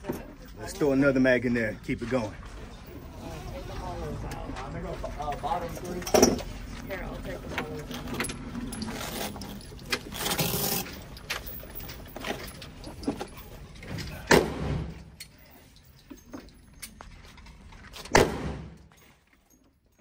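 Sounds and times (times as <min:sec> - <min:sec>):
guns and magazines clinking: 0:05.3 - 0:20.0
loud echoing gunshots: 0:14.3 - 0:15.0, 0:18.1 - 0:18.8.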